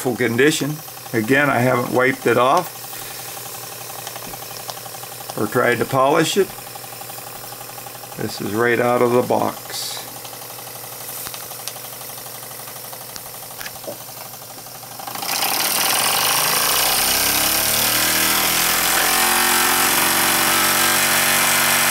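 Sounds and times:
toy steam engine ticking: 0:00.0 - 0:17.9
steam chuffing and hiss: 0:00.0 - 0:21.9.

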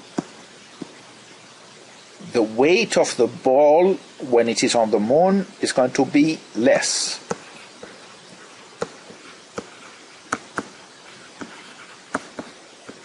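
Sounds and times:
faint hiss: 0:00.0 - 0:13.0
stylus tapping on tablet: 0:00.2 - 0:01.0, 0:07.2 - 0:13.0.

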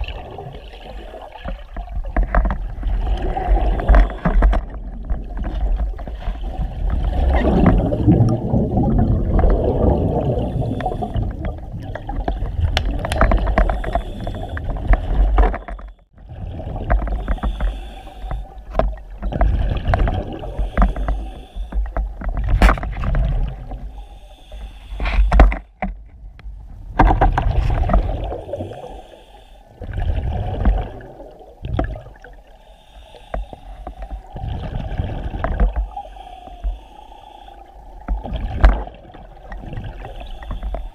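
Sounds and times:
exhaled bubbles rumbling: 0:00.0 - 0:24.0, 0:26.4 - 0:29.1, 0:29.7 - 0:32.6, 0:33.6 - 0:36.9, 0:37.6 - 0:40.9
water rushing underwater: 0:00.0 - 0:25.5, 0:26.7 - 0:40.9
diver regulator hiss: 0:10.3 - 0:11.2, 0:13.4 - 0:14.8, 0:17.1 - 0:18.6, 0:20.3 - 0:21.9, 0:23.7 - 0:25.4, 0:28.3 - 0:29.8, 0:32.4 - 0:34.4, 0:35.6 - 0:38.2, 0:39.9 - 0:40.9.

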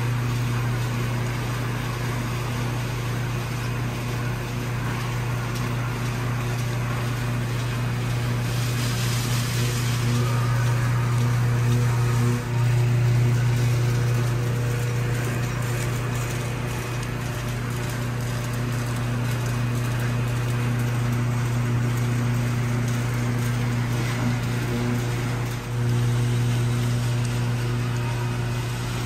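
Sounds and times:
machine hum: 0:00.0 - 0:29.0
water spray hiss: 0:08.3 - 0:10.7.

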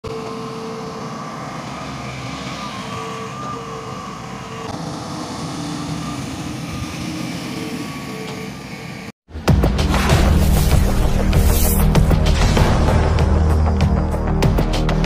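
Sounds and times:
tonal whine above engine rumble: 0:00.0 - 0:09.2
diesel engines of heavy machines: 0:00.0 - 0:09.5.

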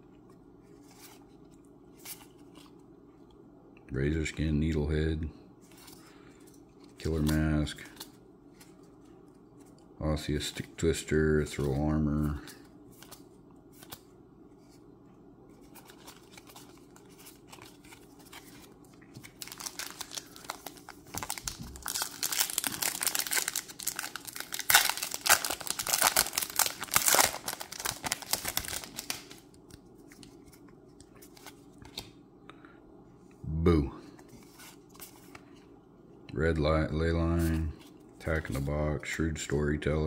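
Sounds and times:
foil wrapper tearing and crinkling: 0:19.2 - 0:29.4.

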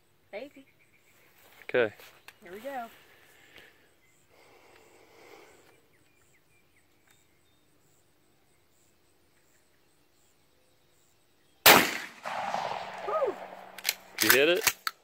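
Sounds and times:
shotgun blast: 0:11.6 - 0:14.8.

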